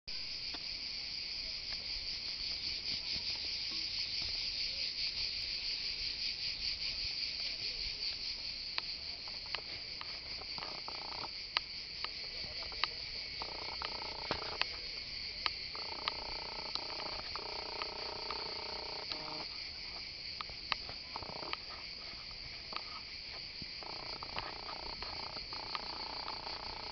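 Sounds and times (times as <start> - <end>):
cicadas buzzing: 0.1 - 26.9
sharp clicks: 9.5 - 14.8, 15.4 - 19.5, 20.4 - 21.8, 23.8 - 26.9.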